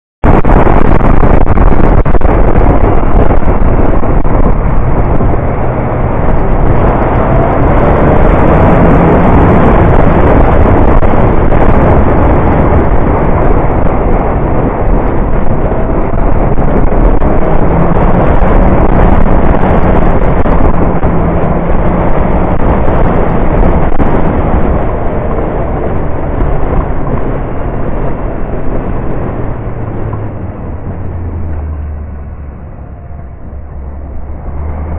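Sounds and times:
motorcycle engine running low: 0:00.2 - 0:34.9
wind buffeting microphone: 0:00.2 - 0:34.9.

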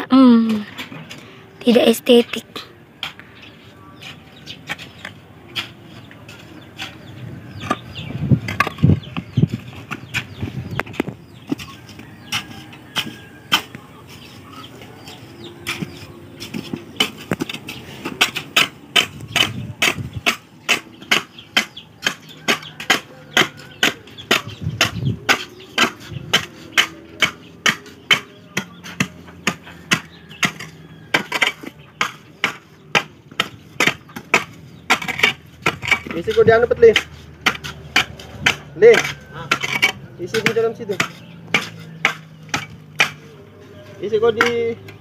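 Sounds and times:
shovel chopping into hard ground: 0:15.7 - 0:43.3.

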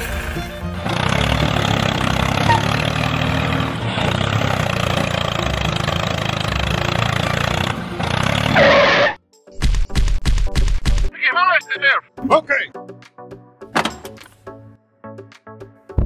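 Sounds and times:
tractor engine running: 0:00.0 - 0:09.2.

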